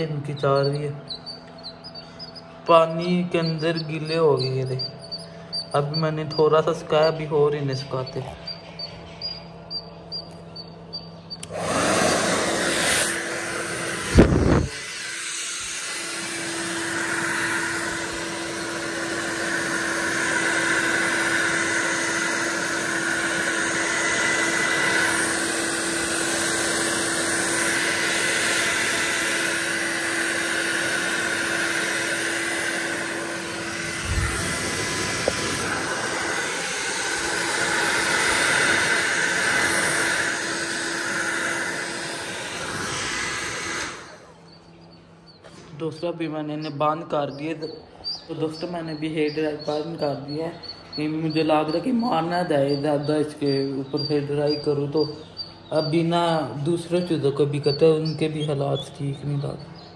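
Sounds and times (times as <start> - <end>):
hair dryer running: 11.4 - 44.4.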